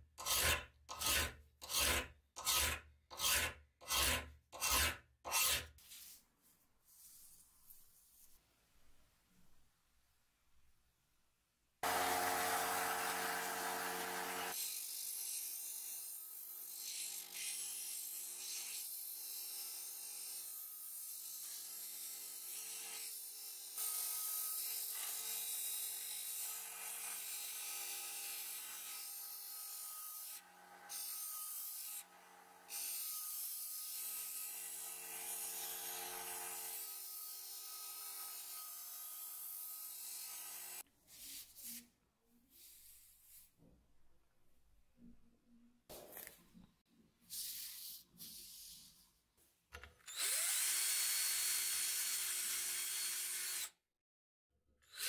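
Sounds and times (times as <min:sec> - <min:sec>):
sander motor hum: 0:11.8 - 0:14.6
steel being ground on sander: 0:11.8 - 0:14.6.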